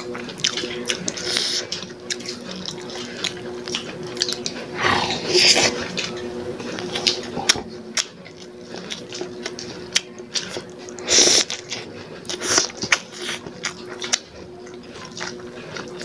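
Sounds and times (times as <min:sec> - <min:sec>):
steady low hum: 0:00.0 - 0:14.7
people chewing with lip smacks: 0:00.0 - 0:16.0
loud breathy sound: 0:04.7 - 0:05.7.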